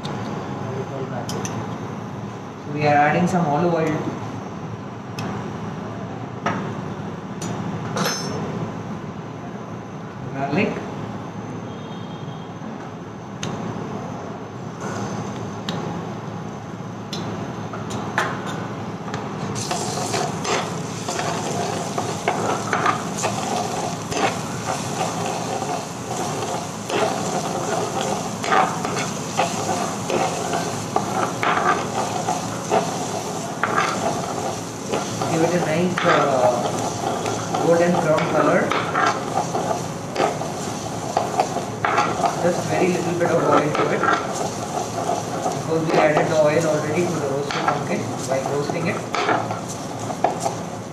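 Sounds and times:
food sizzling in frying pan: 19.5s - 50.9s
ladle scraping pan: 19.6s - 50.6s.

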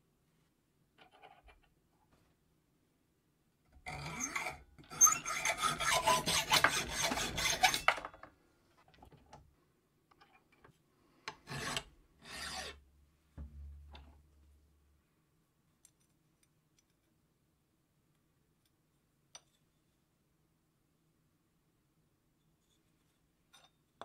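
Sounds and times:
file strokes on steel: 3.9s - 8.0s, 11.3s - 12.8s
hacksaw cutting steel: 3.9s - 8.0s, 11.4s - 12.8s.

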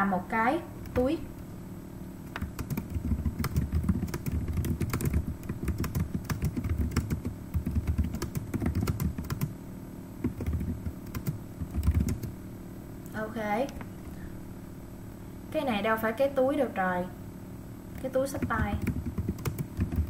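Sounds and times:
computer keyboard typing: 2.3s - 9.5s, 10.2s - 12.4s, 17.9s - 20.0s.

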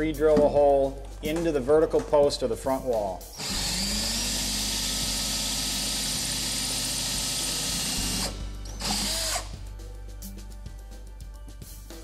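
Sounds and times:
cordless drill running: 3.4s - 9.5s.

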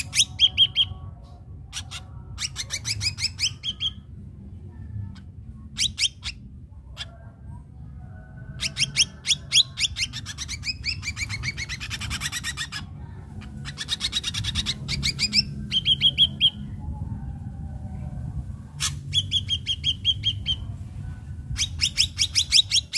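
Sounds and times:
bird singing sharp repeated notes: 1.7s - 4.1s, 8.6s - 12.9s, 13.5s - 16.7s, 18.8s - 20.7s.

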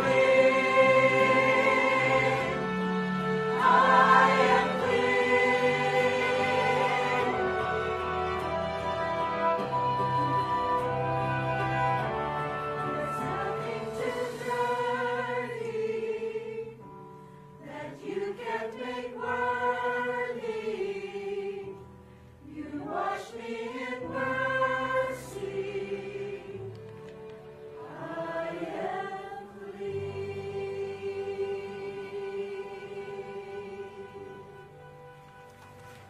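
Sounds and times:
instrumental accompaniment: 0.0s - 15.9s
church choir singing: 0.0s - 17.0s, 17.6s - 36.0s.

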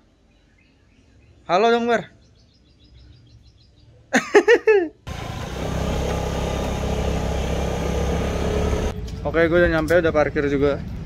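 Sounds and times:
motor scooter engine: 5.1s - 9.0s
wind and road noise: 5.1s - 11.0s.

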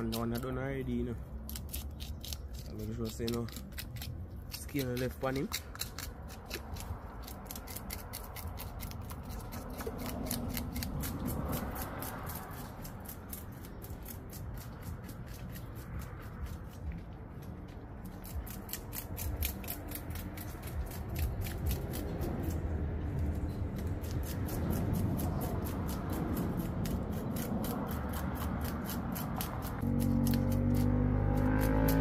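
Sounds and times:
knife scraping fish scales: 1.4s - 16.8s.

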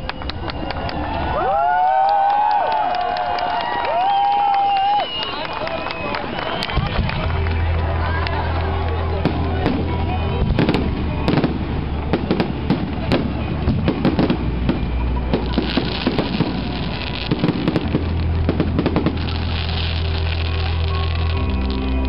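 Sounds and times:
fireworks bangs and crackles: 6.3s - 22.0s
music playing: 6.7s - 22.0s.

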